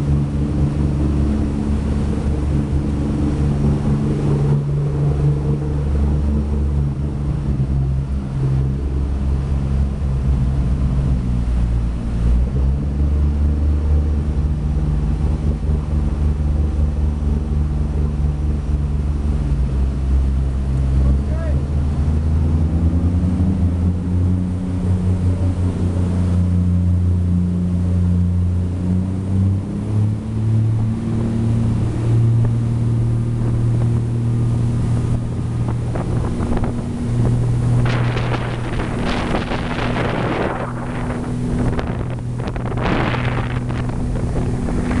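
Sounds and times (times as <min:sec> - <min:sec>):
boat diesel engines: 0:00.0 - 0:45.0
rushing water and spray: 0:00.0 - 0:45.0
wind on microphone: 0:21.7 - 0:45.0.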